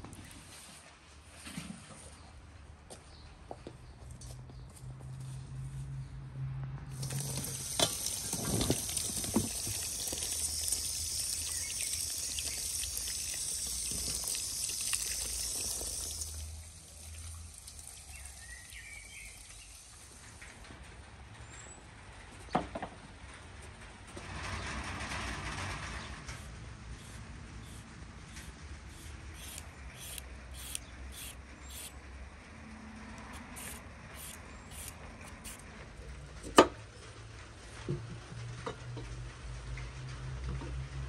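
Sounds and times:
tap water running into colander: 6.9s - 20.6s
peeler scraping carrot: 26.4s - 32.0s, 33.3s - 35.7s.

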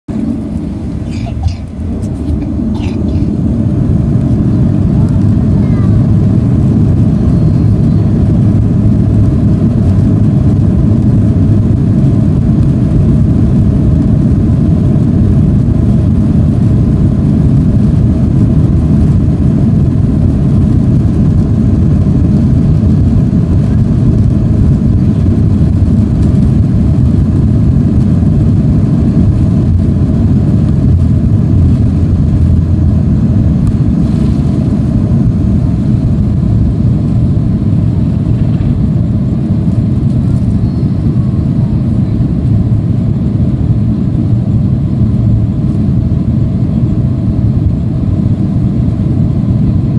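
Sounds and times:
jet engines and runway rumble roaring: 0.1s - 49.9s.

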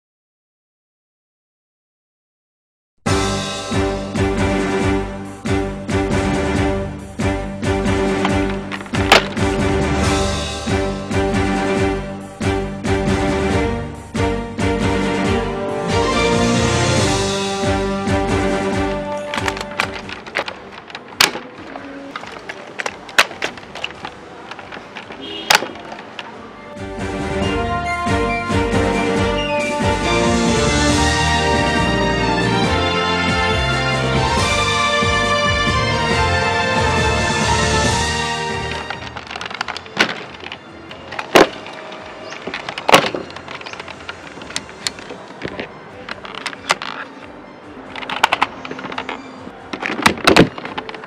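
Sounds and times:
plastic toy parts clicking: 19.2s - 26.4s, 38.7s - 47.2s, 47.9s - 51.0s.

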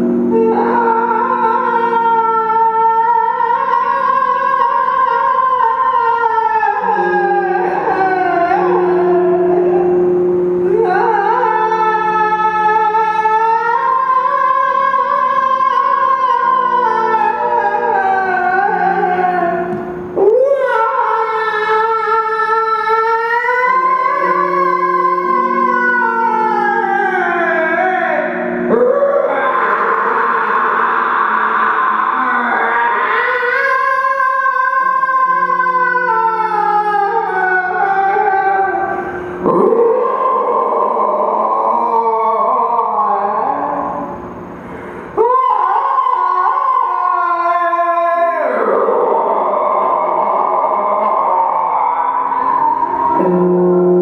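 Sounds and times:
amplified droning vocal tone: 0.0s - 54.0s
low steady drone: 0.0s - 54.0s
rough hissing breath noise: 44.3s - 45.2s.

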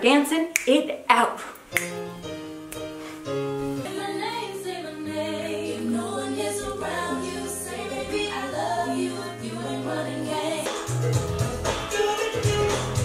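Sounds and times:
voices singing: 3.8s - 12.2s.

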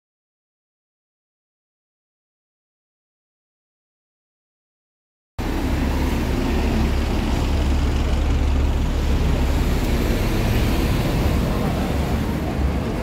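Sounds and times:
street traffic: 5.4s - 13.0s.

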